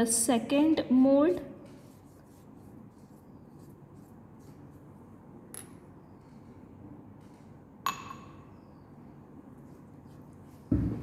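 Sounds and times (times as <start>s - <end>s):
pad rubbing on metal: 1.8s - 4.8s.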